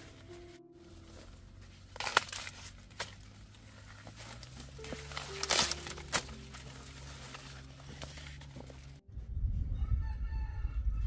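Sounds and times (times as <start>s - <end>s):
dry corn leaves rustling: 0.0s - 9.0s
corn ear snapping off: 1.9s - 3.4s, 4.0s - 6.8s
low rumble: 5.9s - 11.0s.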